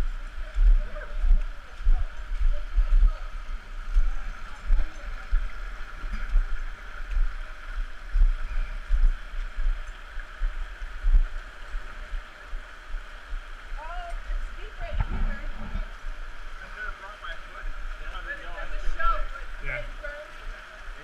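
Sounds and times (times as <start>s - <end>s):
creek water rushing over rock: 0.0s - 21.0s
deep thumps: 14.8s - 16.0s.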